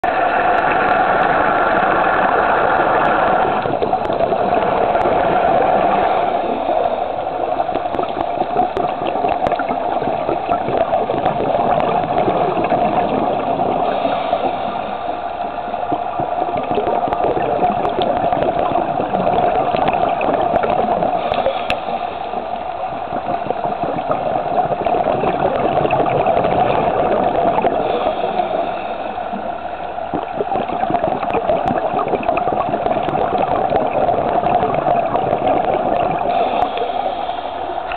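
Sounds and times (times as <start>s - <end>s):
scuba bubbles: 0.0s - 37.9s
underwater rushing and gurgling: 0.0s - 37.9s
small crackles: 0.5s - 14.6s, 15.2s - 28.5s.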